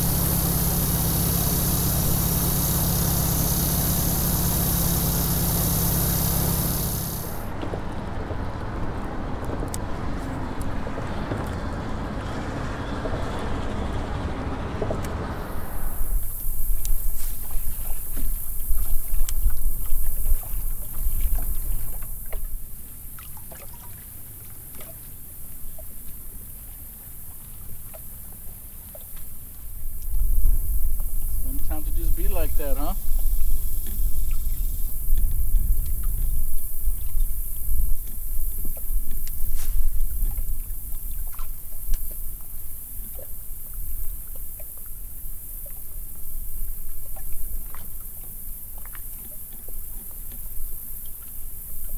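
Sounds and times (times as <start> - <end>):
water lapping against boat hull: 14.8 - 51.9
small splashes: 17.0 - 26.0
wind buffeting microphone: 33.0 - 41.2
faint ticks: 37.9 - 43.3.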